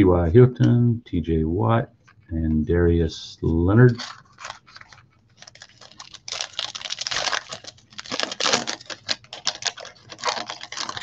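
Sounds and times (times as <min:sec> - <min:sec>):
foil wrappers crinkling and tearing: 0:03.9 - 0:11.0.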